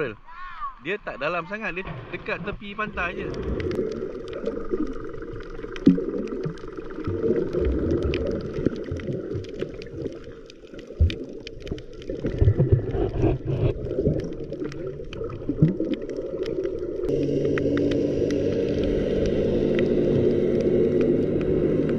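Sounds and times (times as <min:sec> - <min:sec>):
muffled underwater sloshing: 0:01.7 - 0:21.9
sharp underwater clicks: 0:03.0 - 0:21.9
steady hum: 0:17.0 - 0:21.9.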